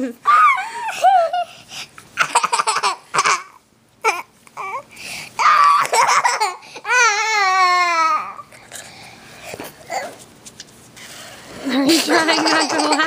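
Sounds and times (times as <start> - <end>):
toddler giggling: 11.9 - 13.0.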